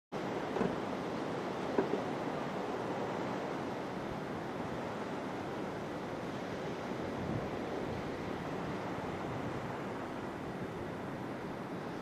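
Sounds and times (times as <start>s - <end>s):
sea surf and waves: 0.1s - 12.0s
wind noise on microphone: 4.1s - 12.0s.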